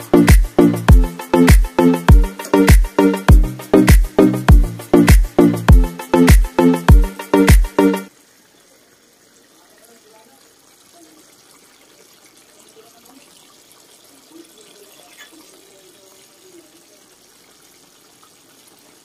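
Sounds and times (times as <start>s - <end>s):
stew simmering: 8.1s - 19.0s.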